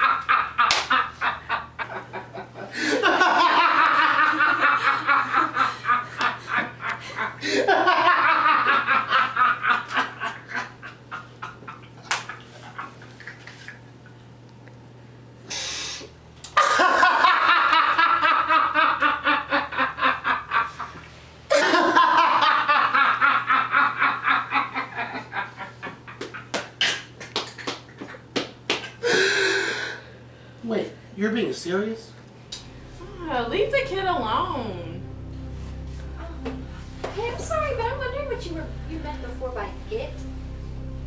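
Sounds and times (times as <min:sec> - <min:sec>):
man laughing hard: 0:00.0 - 0:13.0, 0:16.6 - 0:20.9, 0:21.5 - 0:26.5.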